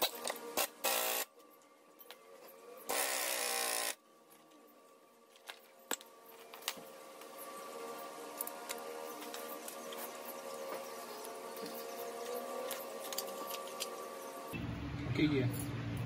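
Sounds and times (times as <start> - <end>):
pneumatic impact wrench: 0.0 - 1.3, 2.9 - 4.0.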